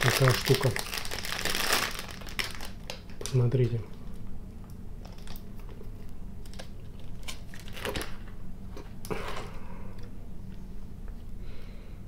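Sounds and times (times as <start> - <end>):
plastic packaging crackling: 0.0 - 4.2, 5.0 - 8.3.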